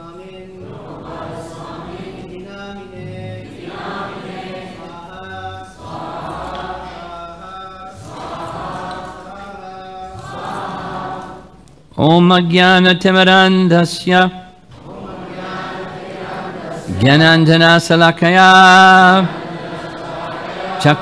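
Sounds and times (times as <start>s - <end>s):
group of voices chanting: 0.6s - 11.5s, 14.8s - 17.4s, 18.7s - 21.0s.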